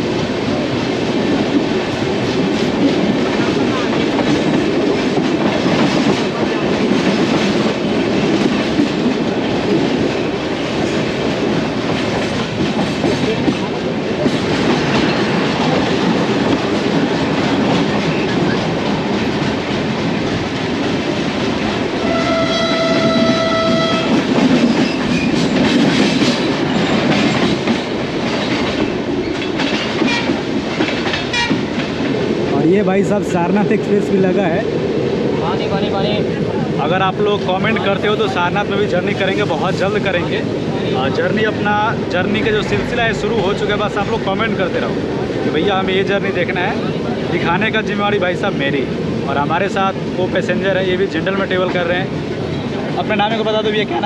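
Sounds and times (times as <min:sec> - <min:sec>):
train rumble: 0:00.0 - 0:54.0
train horn: 0:22.0 - 0:24.2, 0:31.3 - 0:31.6.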